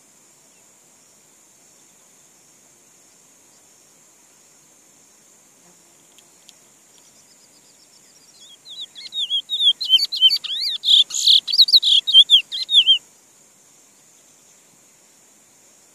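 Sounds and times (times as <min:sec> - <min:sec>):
high insect buzz: 0:00.0 - 0:15.9
finch singing warbling whistles: 0:08.4 - 0:13.0.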